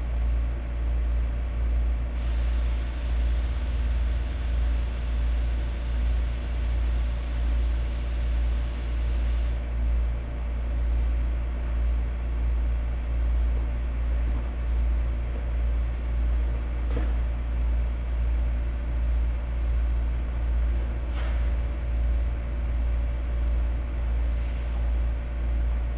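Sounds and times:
steady low hum: 0.0 - 25.9
air hissing from tyre valve: 2.1 - 9.8, 24.2 - 24.9.

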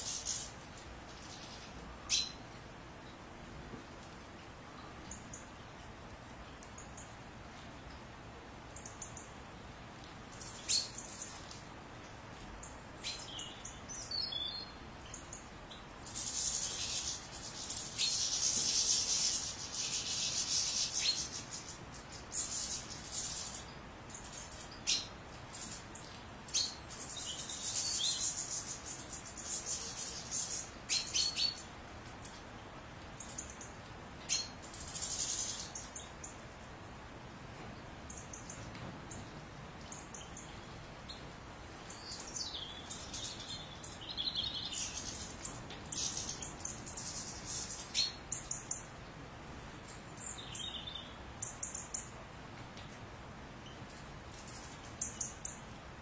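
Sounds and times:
bird twittering song: 0.0 - 2.5, 8.8 - 9.4, 10.3 - 11.6, 12.6 - 32.4, 33.2 - 36.4, 38.1 - 41.2, 41.8 - 48.9, 49.8 - 52.2, 53.6 - 55.7.

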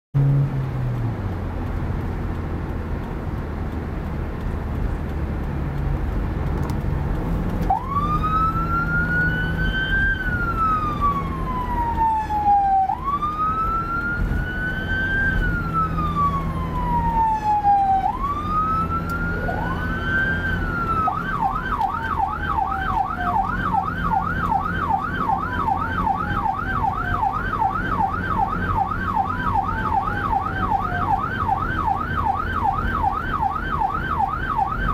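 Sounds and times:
car road and engine noise: 0.2 - 34.9
emergency siren wailing and yelping: 7.6 - 34.9.

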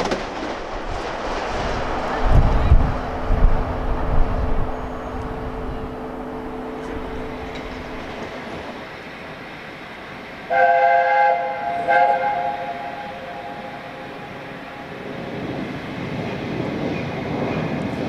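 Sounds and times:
steam locomotive chime whistle: 10.5 - 15.0.

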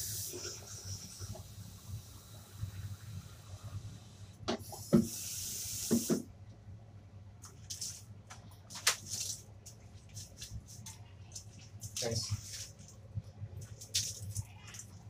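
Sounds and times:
tap water running into cup: 4.5 - 6.2.

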